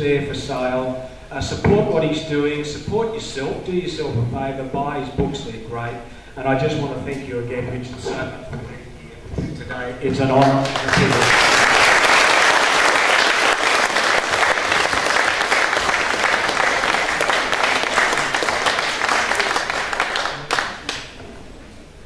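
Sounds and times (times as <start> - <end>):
audience applauding: 10.4 - 21.2.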